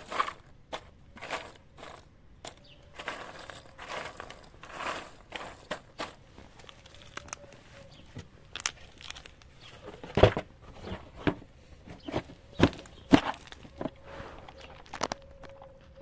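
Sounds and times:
cardboard rustling: 3.0s - 15.6s.

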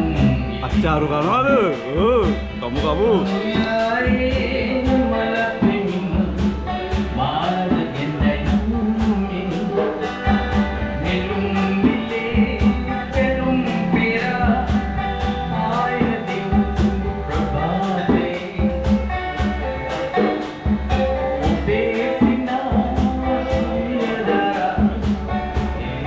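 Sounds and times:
acoustic guitar: 0.0s - 26.0s
hand drum beat: 0.0s - 26.0s
person singing: 0.0s - 26.0s.

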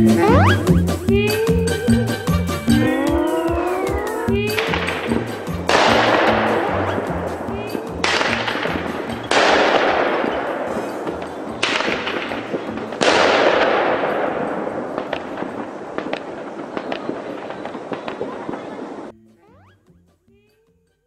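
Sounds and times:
fireworks bangs: 3.0s - 19.1s.

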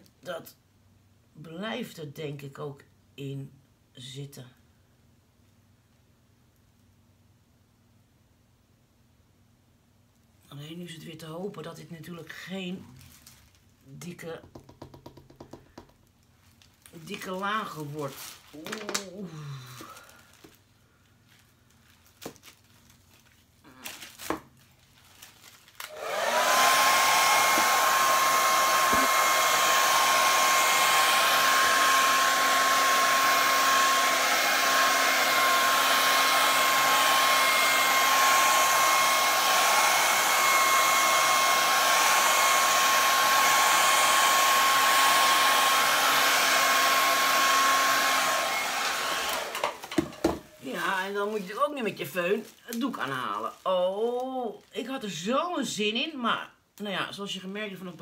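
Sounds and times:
hair dryer running: 25.8s - 51.4s.

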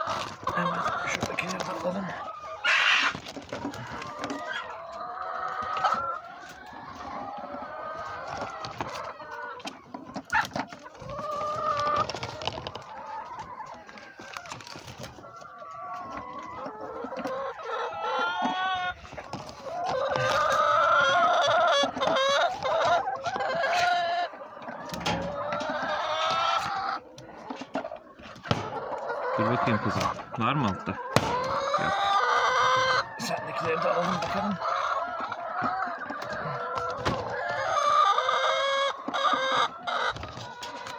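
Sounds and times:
hens clucking: 0.0s - 40.9s
sharp knocks: 31.2s - 31.5s.

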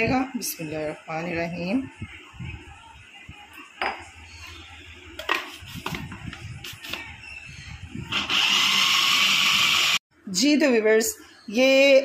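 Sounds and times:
food processor motor whirring: 8.1s - 10.0s.

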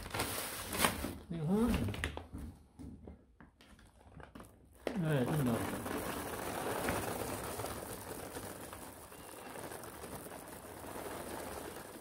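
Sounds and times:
dry kibble pouring into bag: 4.8s - 12.0s.

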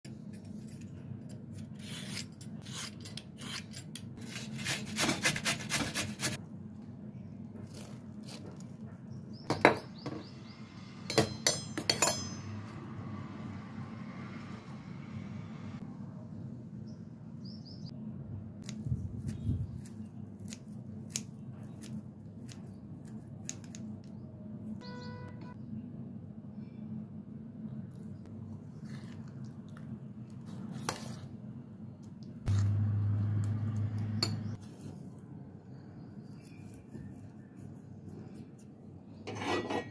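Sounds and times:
scissors snipping herbs: 18.6s - 24.1s
spoon scraping in steel bowl: 39.3s - 39.9s.

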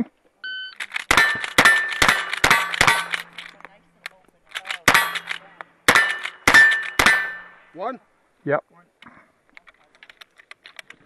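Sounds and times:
rifle shots: 0.8s - 3.6s, 4.5s - 7.7s
steel targets clanging: 1.1s - 3.6s, 4.8s - 7.7s.

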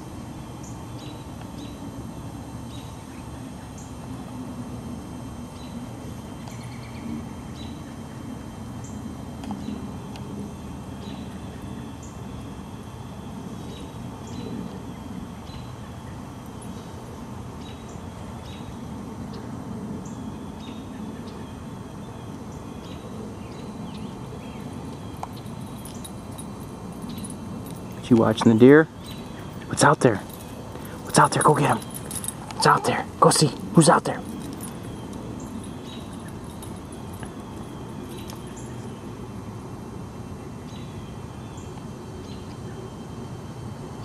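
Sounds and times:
low outdoor rumble: 0.0s - 44.0s
birds chirping: 20.0s - 39.2s.

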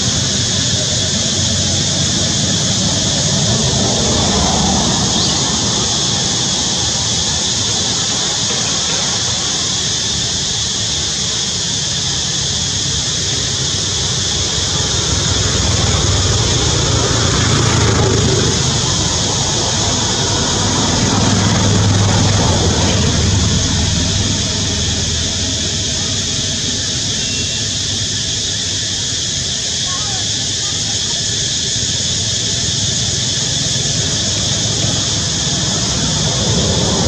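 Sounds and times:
constant high hiss: 0.0s - 37.0s
low rumble: 13.9s - 28.5s.

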